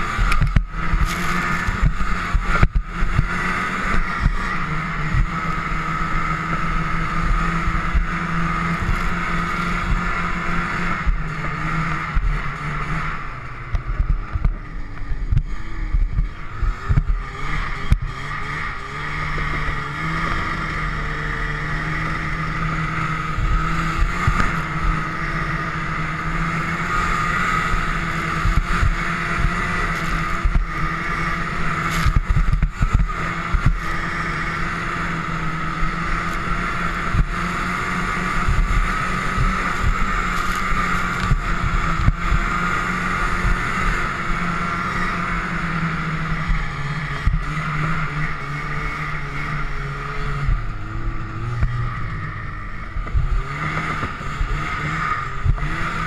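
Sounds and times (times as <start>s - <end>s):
snowmobile engine running: 0.0s - 56.0s.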